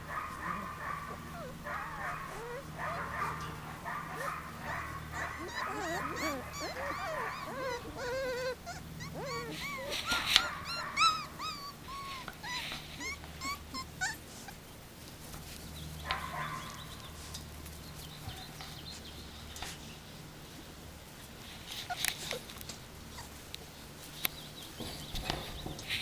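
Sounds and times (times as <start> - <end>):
puppies whining and yipping: 0.0 - 14.7, 21.7 - 26.0.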